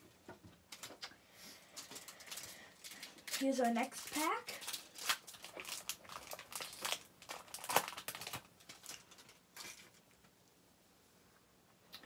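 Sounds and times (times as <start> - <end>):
foil wrapper crinkling: 0.7 - 10.2
cards rustling: 1.7 - 10.0.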